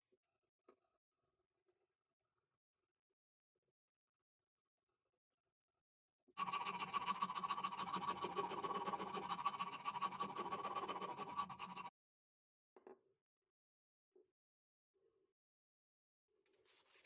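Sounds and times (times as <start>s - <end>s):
rasp scraping wood: 6.4s - 11.9s.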